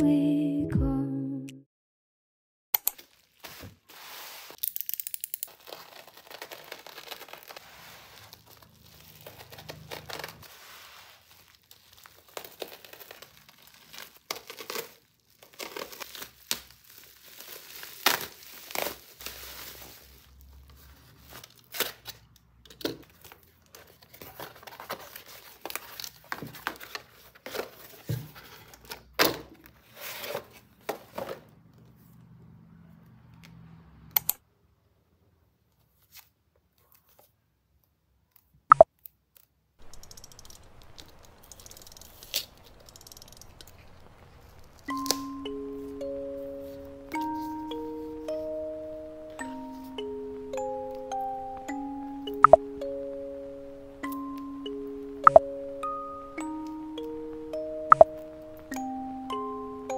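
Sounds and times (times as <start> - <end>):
plastic wrapping crinkling and tearing: 3.0 - 3.6, 4.2 - 31.3, 39.4 - 50.2
cardboard and paper handled: 3.0 - 4.7, 5.5 - 31.6.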